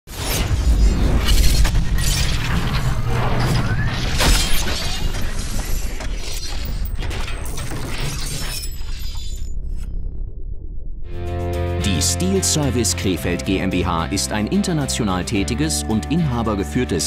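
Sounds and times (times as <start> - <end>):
steady low rumble: 9.4 - 11.8.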